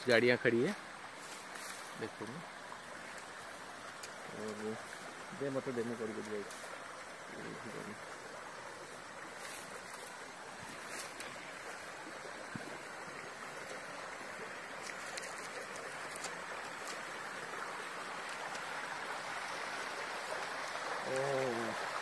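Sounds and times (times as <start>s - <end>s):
stream rippling over rocks: 0.0s - 22.0s.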